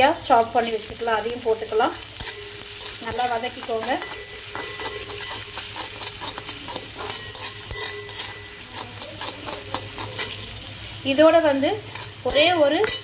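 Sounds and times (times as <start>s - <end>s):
spices sizzling in hot oil: 0.0s - 13.0s
spatula scraping pan: 2.2s - 10.6s, 11.8s - 13.0s.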